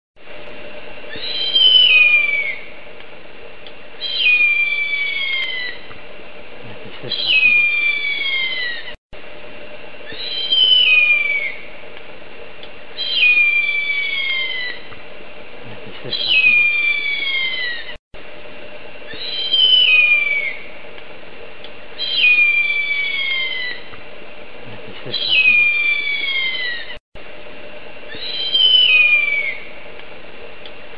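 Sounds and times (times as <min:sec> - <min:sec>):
faint steady hum: 0:00.2 - 0:30.9
eagle calling: 0:01.1 - 0:02.7, 0:04.0 - 0:05.9, 0:06.7 - 0:09.0, 0:10.0 - 0:11.7, 0:13.0 - 0:14.9, 0:15.7 - 0:18.0, 0:19.1 - 0:20.7, 0:22.0 - 0:24.0, 0:24.7 - 0:27.0, 0:28.1 - 0:29.7.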